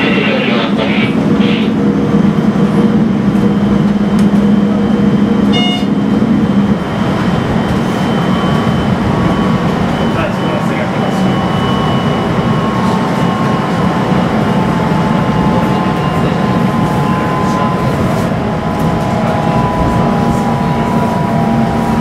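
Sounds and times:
train wheels rumbling on rail: 0:00.0 - 0:22.0
low motor hum: 0:16.5 - 0:22.0.

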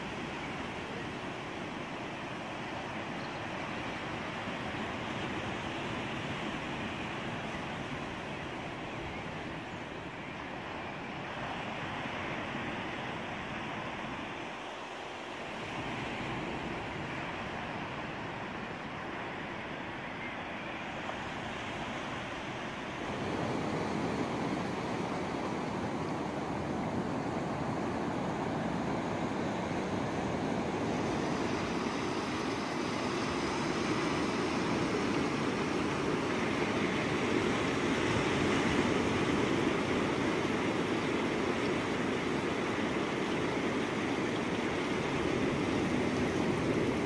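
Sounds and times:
surf breaking on beach: 0:21.1 - 0:47.0.

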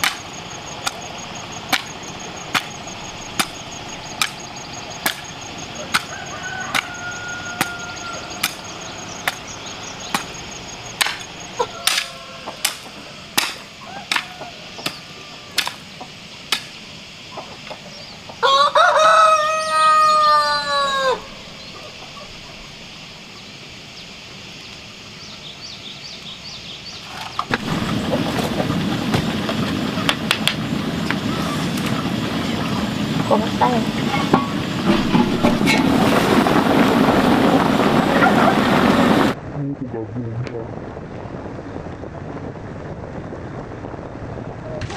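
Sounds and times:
hoe striking the ground: 0:00.0 - 0:01.1, 0:01.7 - 0:07.0, 0:07.6 - 0:09.5, 0:10.1 - 0:15.0, 0:15.6 - 0:15.8, 0:16.5 - 0:16.8, 0:34.1 - 0:36.0
steady hiss: 0:00.0 - 0:44.9
rooster crowing: 0:04.7 - 0:09.5, 0:11.4 - 0:15.9, 0:18.3 - 0:22.6.

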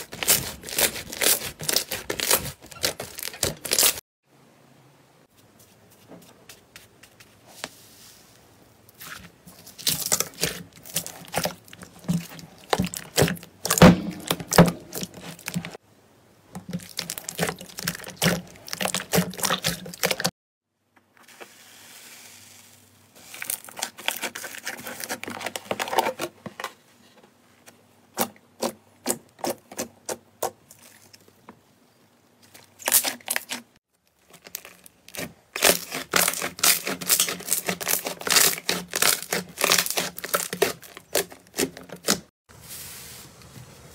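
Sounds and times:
slime popping and crackling: 0:00.1 - 0:04.0, 0:34.3 - 0:42.2.

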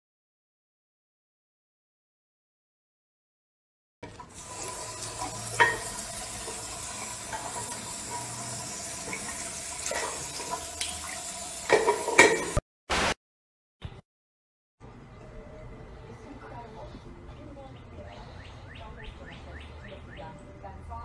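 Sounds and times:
metal clanks and scrapes: 0:05.5 - 0:06.0, 0:11.7 - 0:12.6
short burst of noise: 0:12.9 - 0:13.2.

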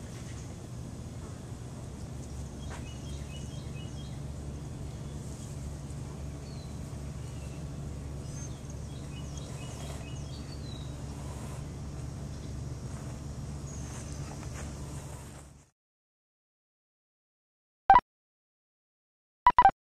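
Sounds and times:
low background rumble: 0:00.0 - 0:15.7
small birds chirping: 0:02.0 - 0:15.2.

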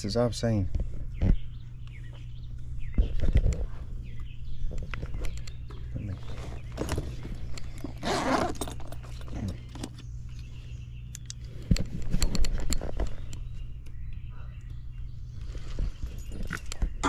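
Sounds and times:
steady low hum: 0:00.0 - 0:17.0
bag rustling: 0:06.2 - 0:09.7.

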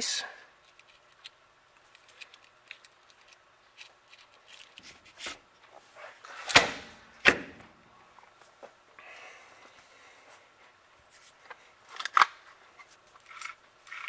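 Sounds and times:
metal parts clicking: 0:00.6 - 0:04.8, 0:13.2 - 0:14.0.

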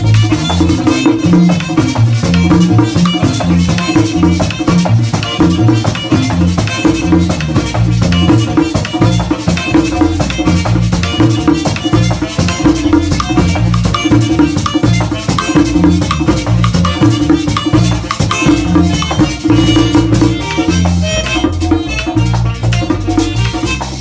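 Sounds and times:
accordion: 0:00.0 - 0:24.0
bass line: 0:00.0 - 0:24.0
saxophone: 0:00.0 - 0:24.0
scraping guira: 0:00.0 - 0:24.0
tambora drum beat: 0:00.0 - 0:24.0.

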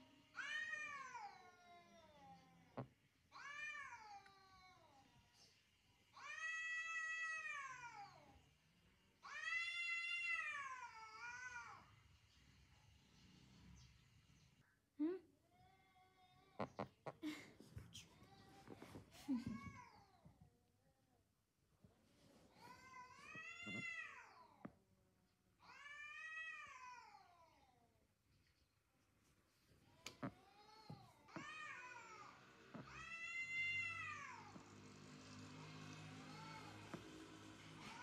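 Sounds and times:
cats yowling: 0:31.4 - 0:34.7.

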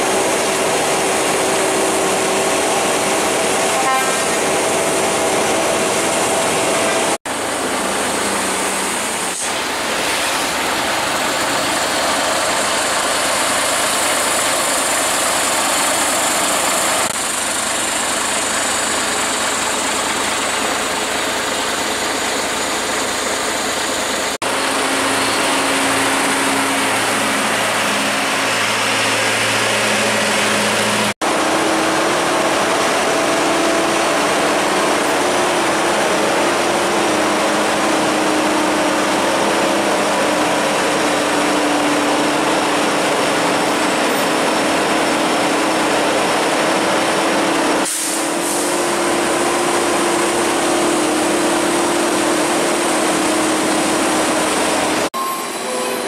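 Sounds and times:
road noise: 0:00.0 - 0:56.0
truck engines rumbling: 0:00.0 - 0:56.0.

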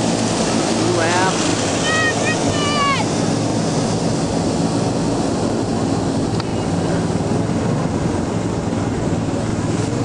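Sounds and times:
snowmobile engines buzzing: 0:00.0 - 0:10.0.

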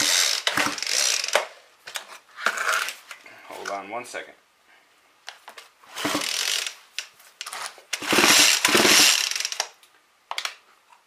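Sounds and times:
chainsaw recoil starter ratcheting: 0:00.0 - 0:01.5, 0:06.0 - 0:07.1, 0:07.9 - 0:09.8.

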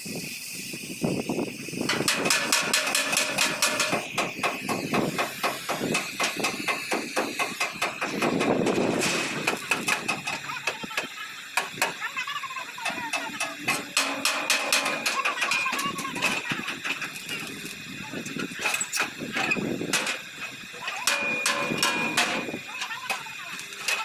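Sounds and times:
gas cutting torch hissing: 0:00.0 - 0:24.0
hammer strikes on steel bumper: 0:01.9 - 0:10.4, 0:13.1 - 0:15.3, 0:21.0 - 0:22.5.

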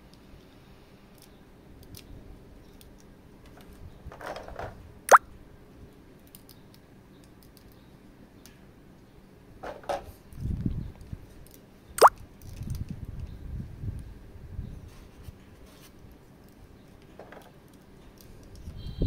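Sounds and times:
small clicks and taps of toy: 0:06.2 - 0:07.8, 0:16.4 - 0:18.7.

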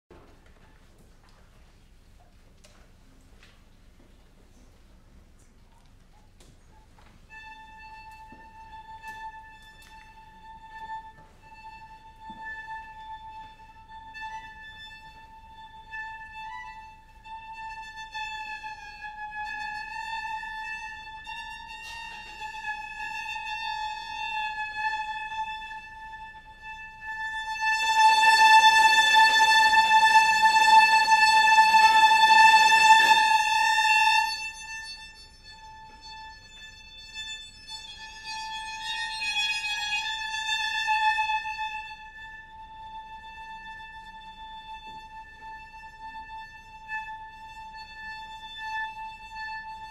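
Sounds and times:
loud noisy bowed strings: 0:17.9 - 0:36.4.

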